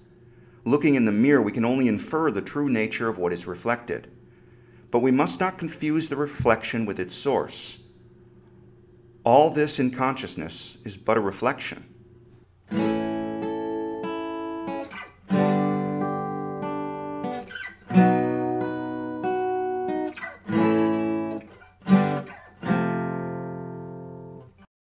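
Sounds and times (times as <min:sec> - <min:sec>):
slow guitar chords ringing: 0:12.1 - 0:24.6.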